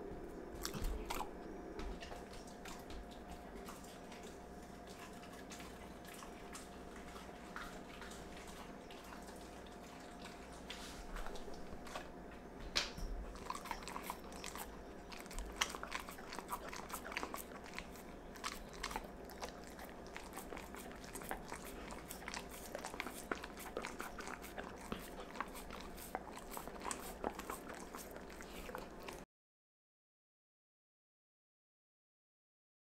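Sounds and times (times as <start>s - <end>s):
dog licking a wooden board: 0.6s - 12.1s, 13.3s - 29.2s.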